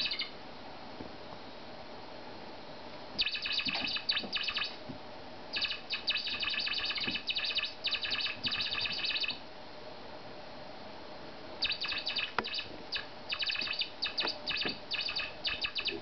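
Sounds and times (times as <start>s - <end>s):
squeaky toy chirping trills: 0.0s - 0.3s, 3.2s - 4.7s, 5.5s - 9.4s, 11.6s - 16.0s.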